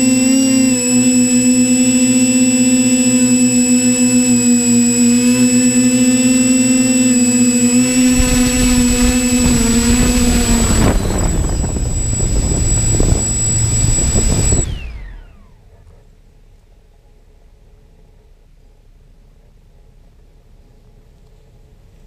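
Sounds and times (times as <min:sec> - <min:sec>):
quadcopter motors whirring: 0:00.0 - 0:15.7.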